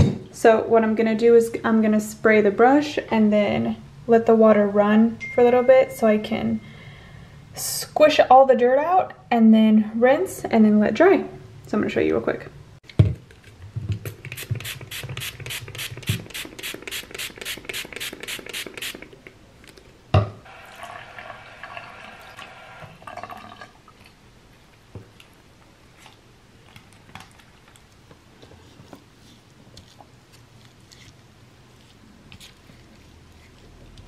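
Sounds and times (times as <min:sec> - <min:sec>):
spray bottle spraying: 0:14.1 - 0:19.1.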